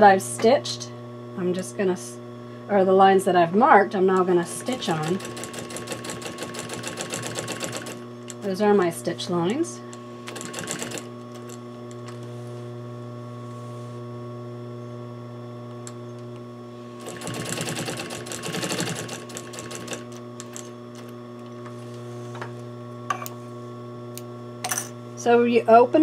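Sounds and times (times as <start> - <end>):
steady machine hum: 0.0 - 26.0
sewing machine stitching: 4.6 - 8.0, 10.3 - 11.6, 17.0 - 21.1.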